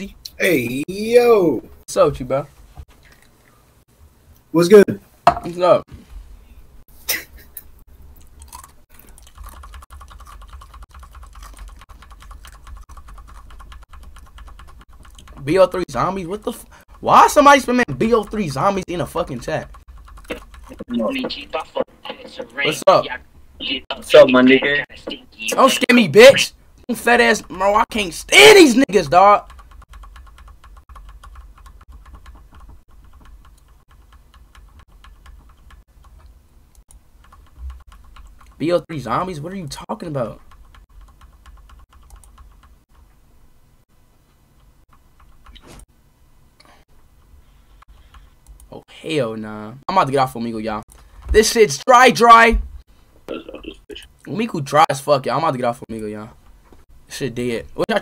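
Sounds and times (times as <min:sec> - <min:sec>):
rapid typing on keyboard: 0:08.4 - 0:21.5, 0:29.1 - 0:38.9, 0:40.2 - 0:43.0.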